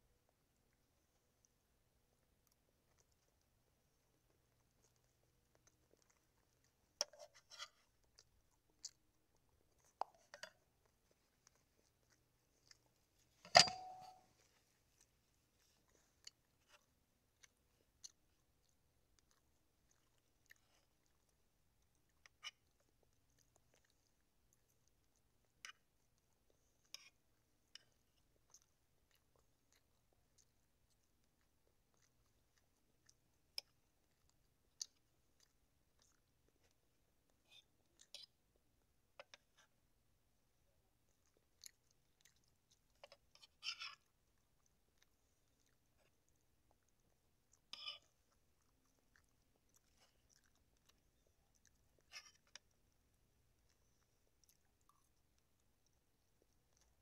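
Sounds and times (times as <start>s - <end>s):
person chewing food: 0.1s - 57.0s
loud clack with ring: 13.5s - 14.1s
fork tapping and scraping plate: 13.5s - 14.2s.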